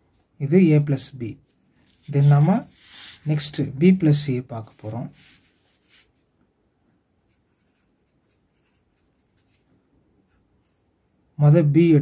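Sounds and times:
marker scratching on paper: 1.8s - 3.4s, 4.7s - 6.2s, 7.2s - 9.7s.

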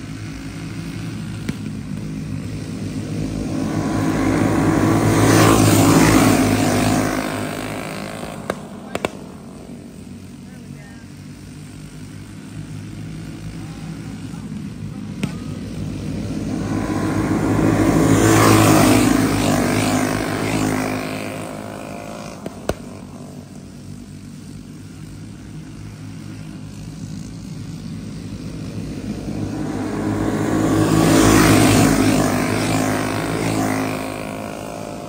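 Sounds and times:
racing kart engines buzzing past: 0.0s - 35.0s.

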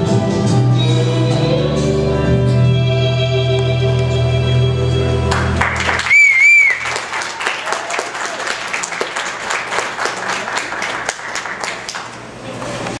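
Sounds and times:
audience applause: 5.3s - 12.3s
loud two-note whistle: 6.1s - 6.9s.

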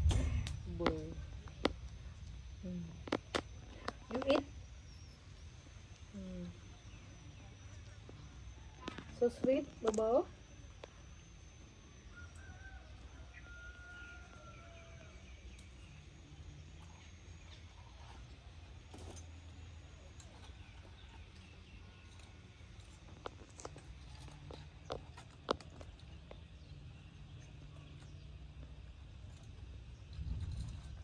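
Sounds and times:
low rumble: 0.0s - 7.3s, 28.4s - 31.0s.

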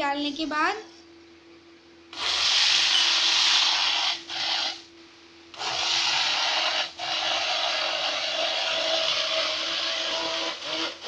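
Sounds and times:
immersion blender running: 2.2s - 4.8s, 5.6s - 11.0s.

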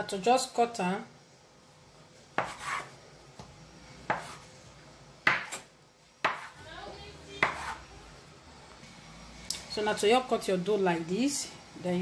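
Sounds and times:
knife cutting bread dough: 2.3s - 4.5s, 5.2s - 6.6s, 7.4s - 7.8s.

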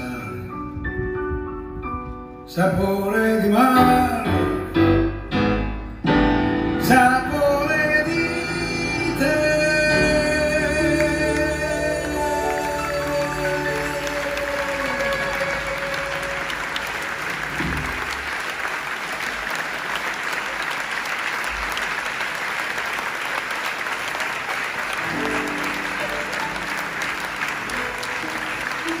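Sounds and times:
audience applauding: 7.4s - 29.0s.

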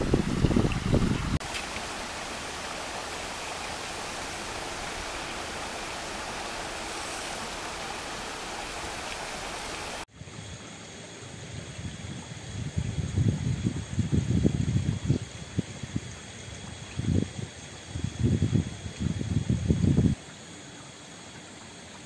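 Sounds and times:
wind gusting on microphone: 0.0s - 1.4s, 11.5s - 20.2s
river water flowing: 0.0s - 10.1s.

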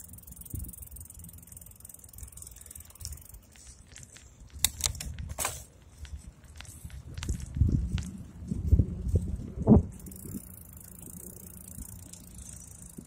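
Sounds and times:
bike mechanical clicks and rattles: 0.0s - 13.0s
wind and road rumble: 0.0s - 13.0s.

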